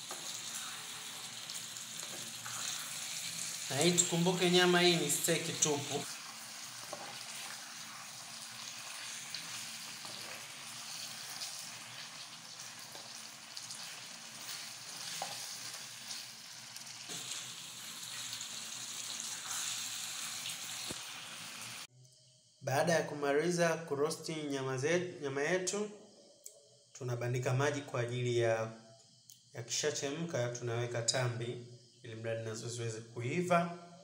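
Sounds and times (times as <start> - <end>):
meat sizzling in sauce: 0.0 - 21.9.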